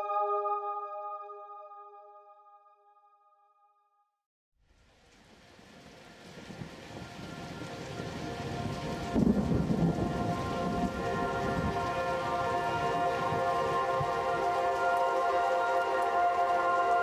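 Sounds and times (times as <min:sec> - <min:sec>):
soft sustained music tones: 0:00.0 - 0:03.0, 0:05.5 - 0:17.0
rain: 0:04.6 - 0:17.0
thunder rumble: 0:05.5 - 0:15.2.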